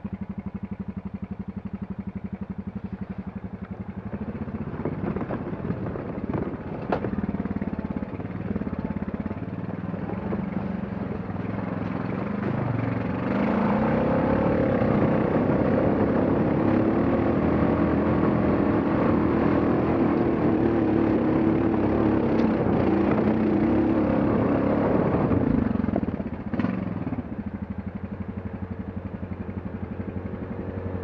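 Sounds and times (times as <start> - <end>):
atv engine pulling under load: 2.8 - 27.6.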